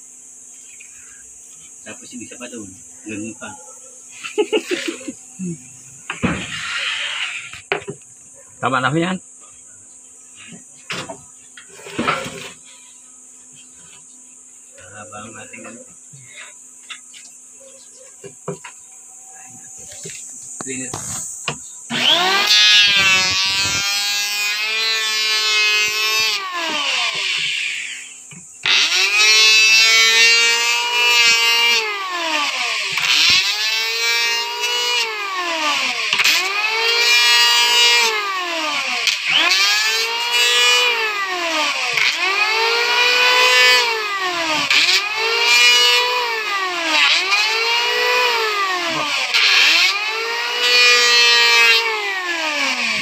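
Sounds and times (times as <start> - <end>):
electric hand planer whining: 4.1 - 5.2, 6.0 - 7.9, 10.4 - 12.8, 19.8 - 53.0.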